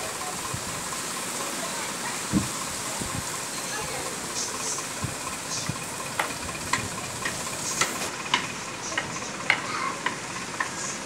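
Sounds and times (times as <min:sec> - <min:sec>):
rain hissing: 0:00.0 - 0:11.0
drops ticking on hard surface: 0:06.1 - 0:10.8.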